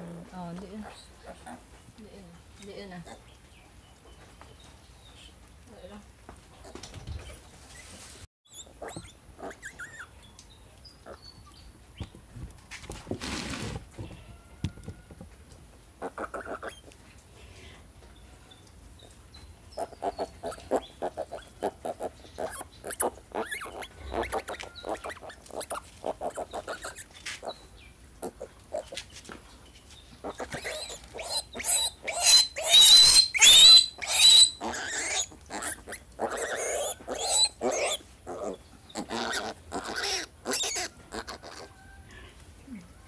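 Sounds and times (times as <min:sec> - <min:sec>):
piglet squealing: 0:08.5 - 0:10.1, 0:19.8 - 0:27.6, 0:30.2 - 0:41.7
piglet grunting: 0:30.2 - 0:41.7.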